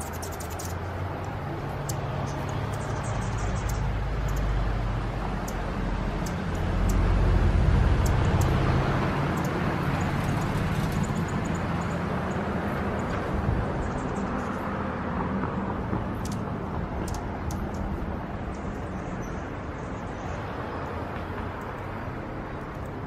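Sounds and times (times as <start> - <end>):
faint sharp high ticks: 3.4 - 4.5, 5.4 - 5.6, 6.2 - 7.1, 9.3 - 10.5, 16.2 - 17.9.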